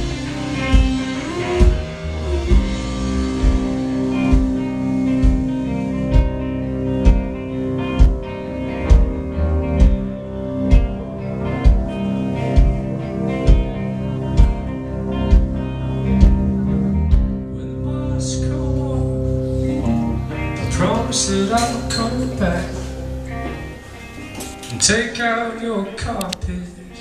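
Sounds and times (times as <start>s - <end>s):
keyboard and guitar chords: 0.0s - 27.0s.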